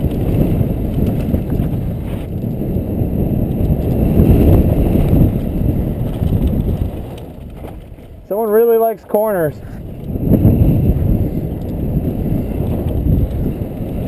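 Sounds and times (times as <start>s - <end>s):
bike rattle: 0.0s - 14.0s
tyres rumbling on dirt: 0.0s - 14.0s
wind buffeting microphone: 0.0s - 14.0s.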